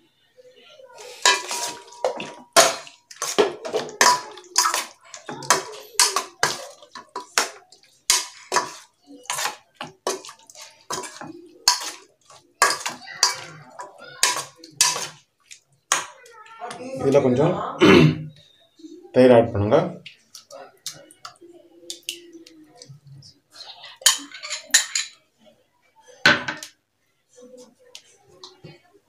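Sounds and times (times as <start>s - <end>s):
metal spoon scraping a bowl: 1.0s - 15.2s.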